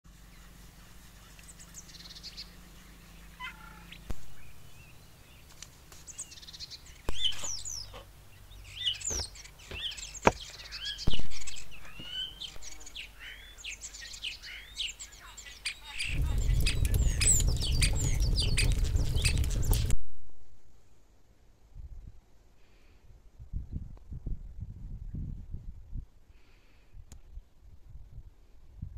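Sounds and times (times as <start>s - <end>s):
songbirds chirping: 0.1s - 21.4s
wood fire burning: 16.0s - 20.1s.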